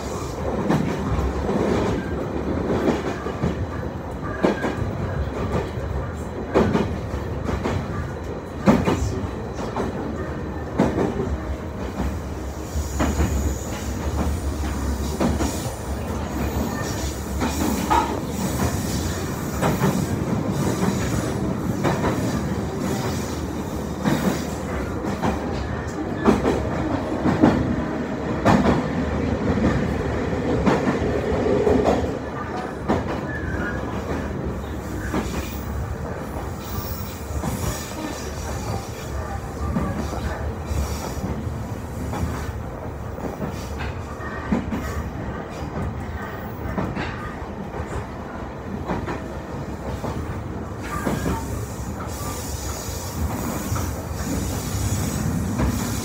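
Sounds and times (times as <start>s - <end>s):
train rumble from inside car: 29.5s - 56.0s.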